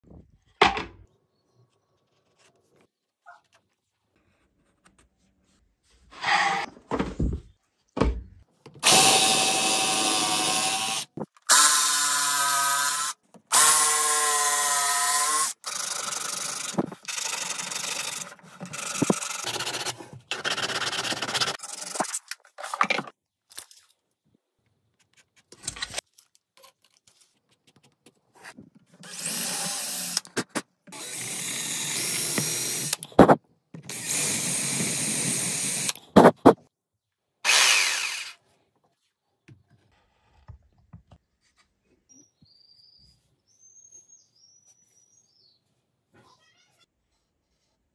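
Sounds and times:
jigsaw motor whining: 8.8 - 19.9, 29.0 - 30.2, 30.9 - 33.0, 33.9 - 36.0, 37.5 - 38.4.

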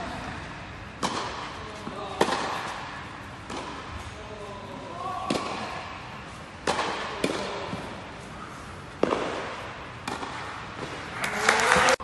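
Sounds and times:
tennis ball hit with rackets: 1.0 - 4.1, 5.1 - 6.0, 6.6 - 8.0, 8.9 - 11.1.

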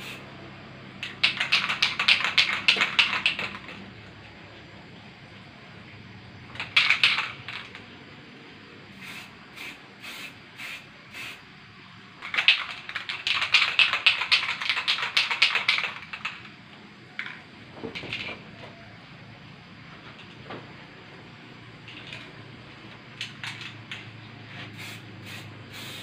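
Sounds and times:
aerosol spray can bursts: 0.0 - 0.2, 1.0 - 3.6, 6.6 - 7.8, 8.9 - 11.4, 12.2 - 16.4, 24.5 - 26.0.

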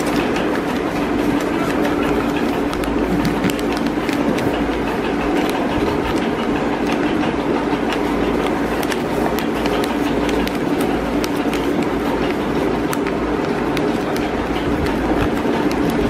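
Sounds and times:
paper crackling: 0.0 - 16.0
steady background hum: 0.0 - 16.0.

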